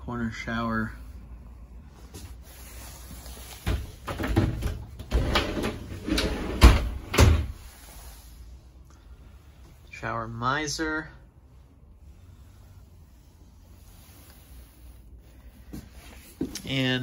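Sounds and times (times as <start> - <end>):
knocks and rattles: 3.7 - 7.5
shower doors sliding on track: 3.7 - 7.6.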